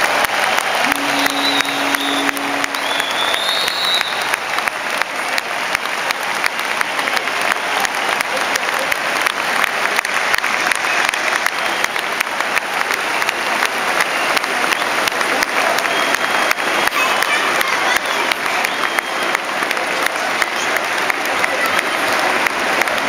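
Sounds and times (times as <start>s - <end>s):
crowd applauding: 0.0s - 23.0s
short high whistle: 0.8s - 4.3s.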